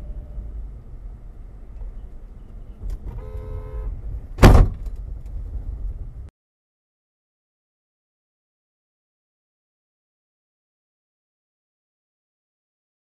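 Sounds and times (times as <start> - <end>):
in-cabin car rumble on snowy road: 0.0 - 6.3
car horn honking: 3.1 - 4.0
loud bang of snow against car: 4.4 - 4.8.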